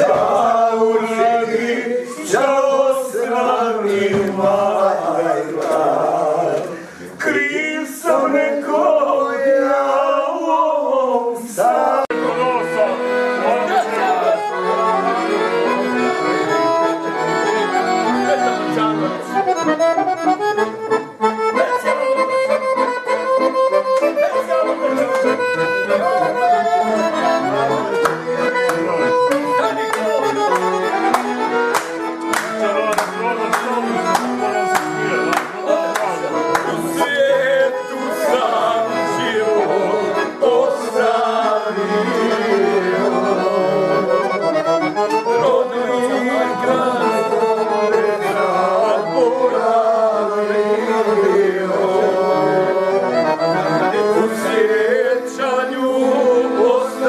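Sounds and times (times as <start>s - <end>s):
man singing: 0.0s - 15.6s, 32.5s - 53.2s, 53.9s - 57.0s
accordion playing folk tune: 0.0s - 57.0s
hand claps: 24.9s - 25.4s, 28.0s - 36.9s.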